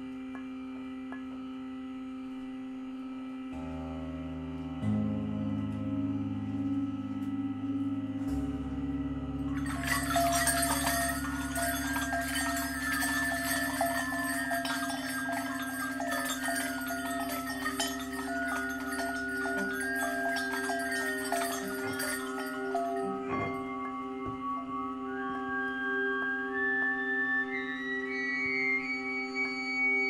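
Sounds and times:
low drone: 3.5s - 27.9s
metallic chimes and bells: 9.4s - 24.6s.

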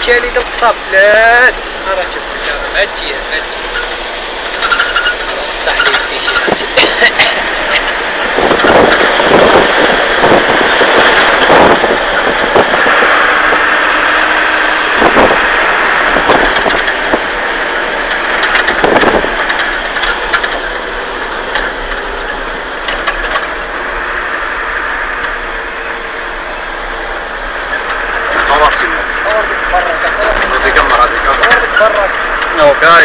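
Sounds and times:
road and wind noise: 0.0s - 33.0s
vehicle engine running: 0.0s - 33.0s
knocks and rattles: 3.7s - 12.7s, 16.2s - 17.2s, 18.0s - 20.8s.

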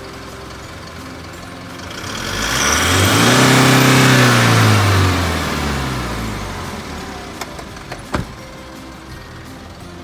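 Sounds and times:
truck engine revving: 1.3s - 7.8s.

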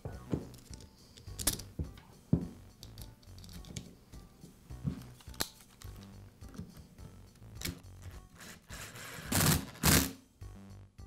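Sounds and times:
soft background music: 0.0s - 11.0s
metal housing clicks and knocks: 0.4s - 3.9s.

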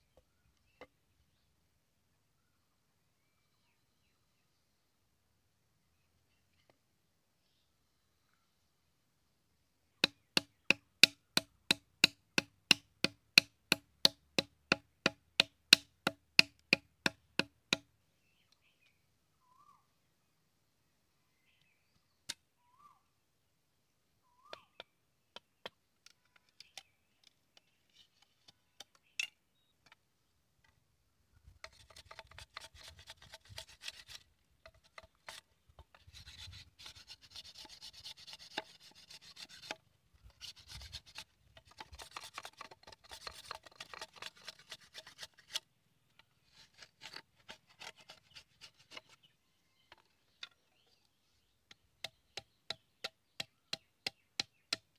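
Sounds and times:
blade scraping bamboo: 31.6s - 49.3s.

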